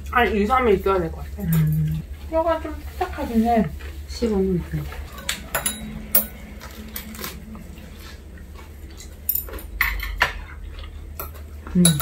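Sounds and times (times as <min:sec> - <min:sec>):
utensils clicking against bowls: 0:04.9 - 0:07.4, 0:08.9 - 0:12.0.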